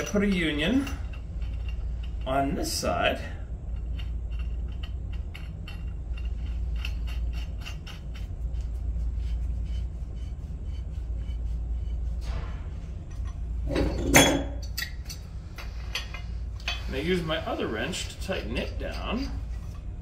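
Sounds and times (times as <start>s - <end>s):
steady low hum: 0.0s - 20.0s
metal wrench clank: 13.1s - 16.9s.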